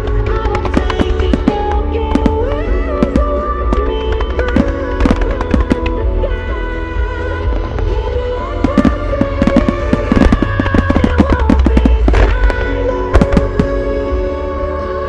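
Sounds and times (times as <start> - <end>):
fireworks bursting: 0.0 - 6.0, 8.5 - 14.0
music with long held notes: 0.0 - 15.0.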